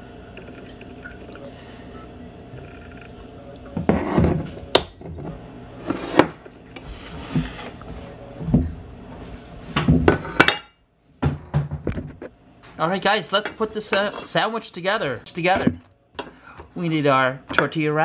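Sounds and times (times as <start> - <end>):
kitchen items knocking on wood: 11.2 - 12.2.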